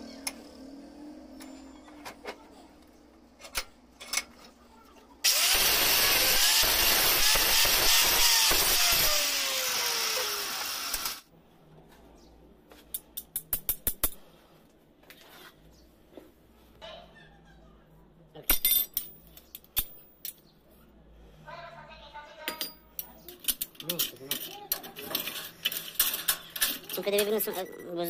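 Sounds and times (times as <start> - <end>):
angle grinder grinding steel: 5.2 - 11.2.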